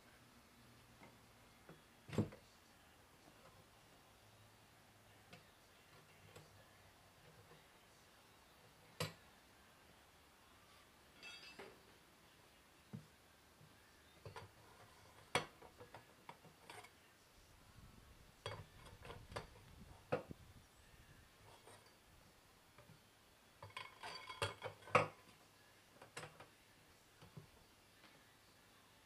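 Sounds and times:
steel bar clinking on metal: 11.1 - 11.8, 23.6 - 25.2.

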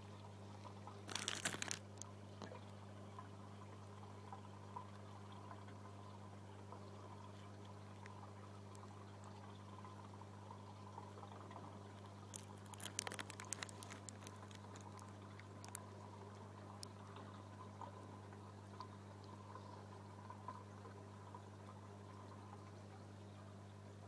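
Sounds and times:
trickle of water: 0.0 - 24.0
small clicks: 1.1 - 2.1, 12.3 - 15.9.

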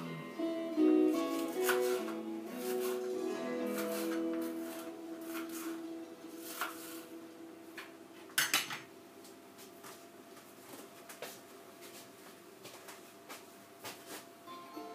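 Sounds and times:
plates and cutlery clinking: 1.3 - 5.8.

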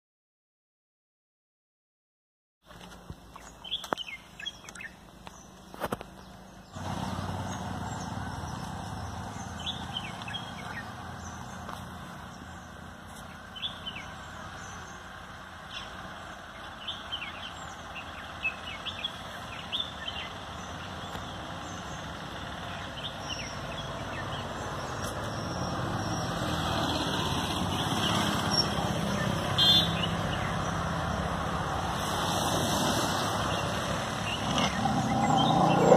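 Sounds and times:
bird chirps: 33.5 - 35.9
steady low rumble: 34.2 - 35.9.

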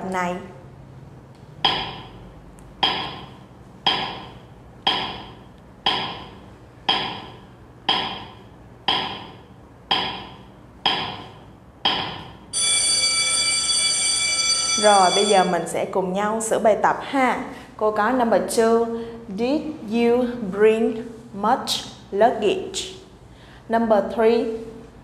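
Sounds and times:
clock ticking: 1.6 - 2.2, 2.8 - 12.3
alarm bell ringing: 12.5 - 15.7.

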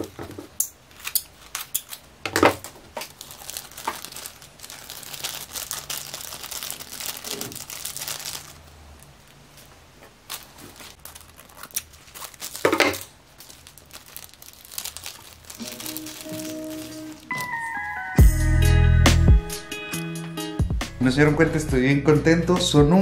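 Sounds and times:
plastic wrapping crinkling and tearing: 0.8 - 18.0.

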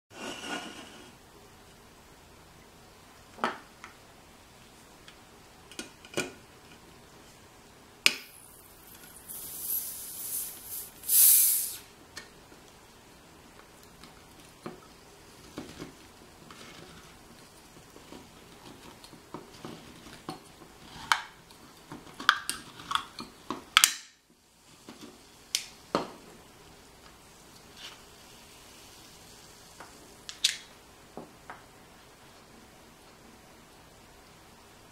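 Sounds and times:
carbonation hissing: 8.1 - 12.0, 24.6 - 30.8.

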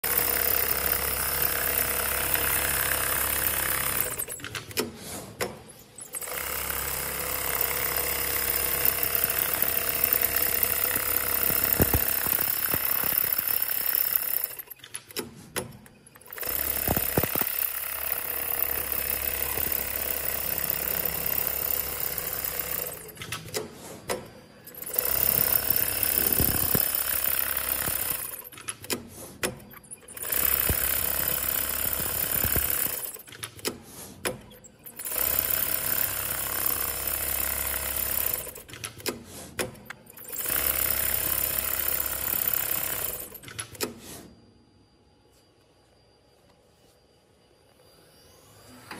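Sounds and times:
sewing machine stitching: 0.0 - 5.0, 6.1 - 15.3, 16.2 - 23.6, 24.7 - 28.9, 29.9 - 33.6, 34.9 - 39.0, 40.2 - 43.5
machine clicks: 8.8 - 20.0, 21.2 - 36.8, 37.6 - 44.0.

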